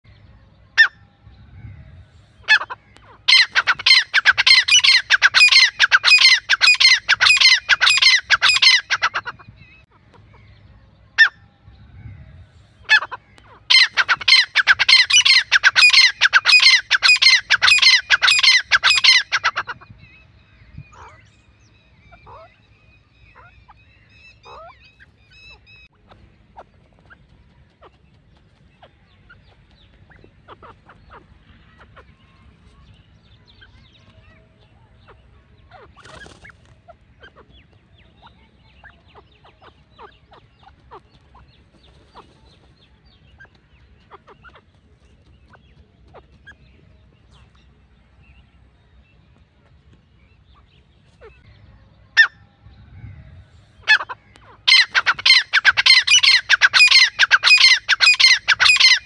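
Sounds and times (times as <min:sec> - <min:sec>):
francolin calling: 0:02.4 - 0:09.6, 0:53.2 - 0:59.0.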